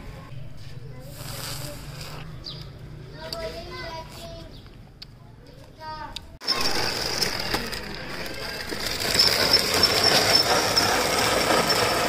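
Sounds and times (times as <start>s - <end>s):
plastic toy wheels rattling on concrete: 6.4s - 12.0s.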